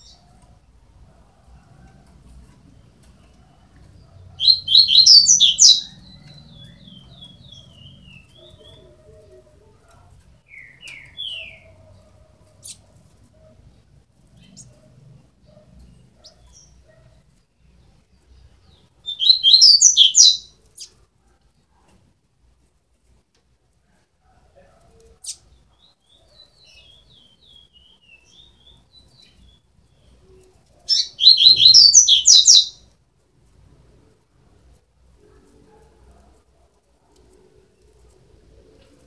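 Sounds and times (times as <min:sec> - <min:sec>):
bird chicks chirping: 0:02.3 - 0:09.4, 0:10.4 - 0:13.0, 0:15.4 - 0:21.0, 0:25.2 - 0:32.9.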